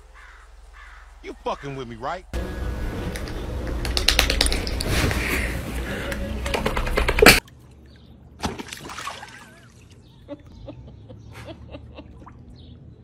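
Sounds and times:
pool water sloshing: 0:07.3 - 0:10.1.

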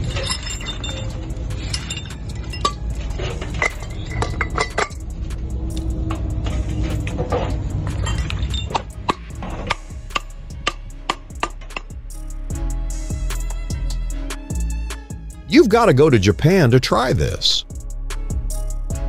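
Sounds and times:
metal parts clinking together: 0:00.0 - 0:05.0, 0:05.7 - 0:09.8
background music: 0:00.0 - 0:19.0.

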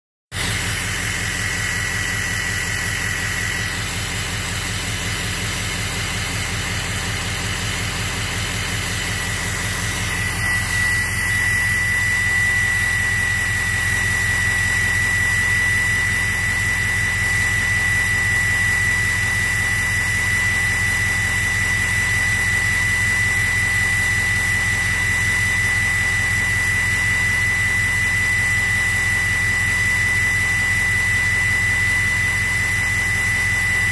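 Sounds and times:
turbo whistle: 0:00.3 - 0:33.9.

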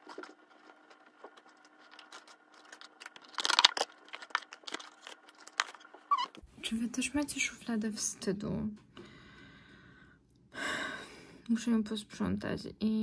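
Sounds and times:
rustling: 0:00.0 - 0:06.4.

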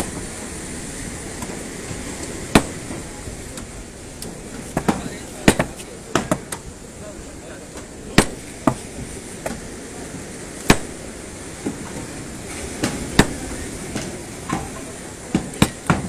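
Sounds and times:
hammer and crowbar blows: 0:10.6 - 0:11.0.

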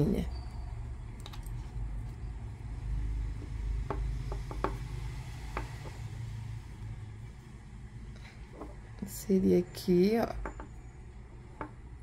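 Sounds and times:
light clicks and taps: 0:01.2 - 0:01.7.

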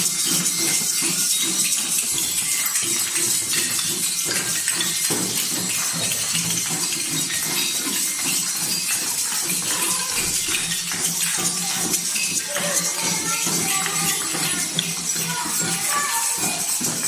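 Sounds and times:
children playing percussion instruments: 0:00.0 - 0:17.0.

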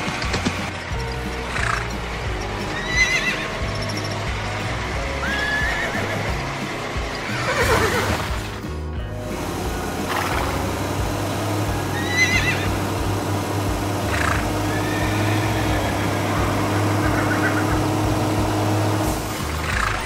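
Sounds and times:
low tractor engine hum: 0:00.0 - 0:20.0
cartoon horse whinnying: 0:02.7 - 0:03.5, 0:05.2 - 0:06.4, 0:07.3 - 0:08.2, 0:11.9 - 0:12.8, 0:14.1 - 0:17.8.

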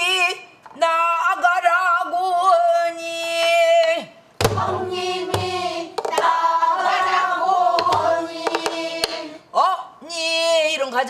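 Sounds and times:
barrel drum strokes: 0:04.4 - 0:09.3.

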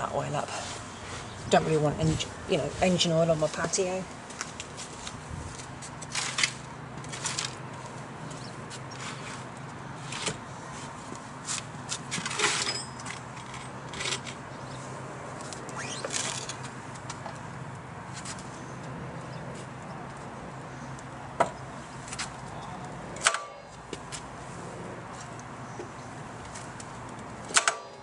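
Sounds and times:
scrapes and clatters of handling: 0:02.8 - 0:14.4.

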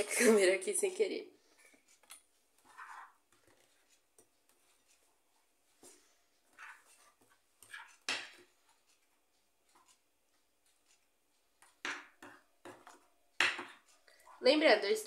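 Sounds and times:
spoon scraping dough in bowl: 0:01.5 - 0:15.0.

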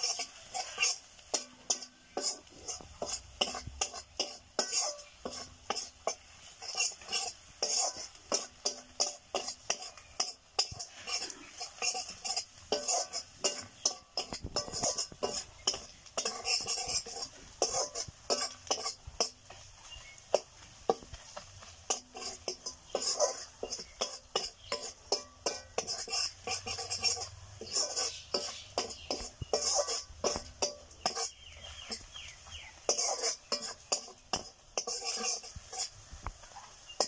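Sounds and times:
wooden spatula scraping a pan: 0:00.0 - 0:37.0.

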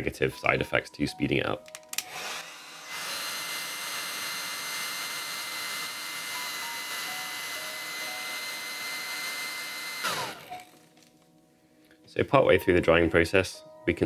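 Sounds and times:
hair dryer blowing: 0:02.0 - 0:10.7.

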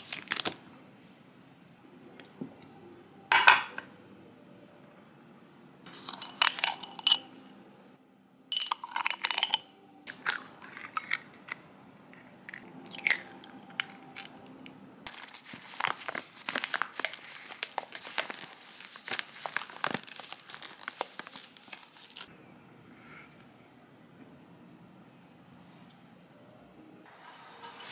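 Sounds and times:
ceramic bowls clinking: 0:05.9 - 0:07.6, 0:08.5 - 0:09.7
spoon crunching through sugar: 0:08.8 - 0:11.6, 0:12.2 - 0:14.3
egg cracking: 0:12.2 - 0:14.4.

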